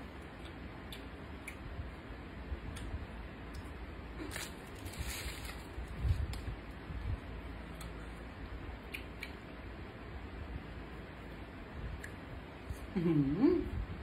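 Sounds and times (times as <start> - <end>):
sticky food clicks and rustles: 2.7 - 6.8.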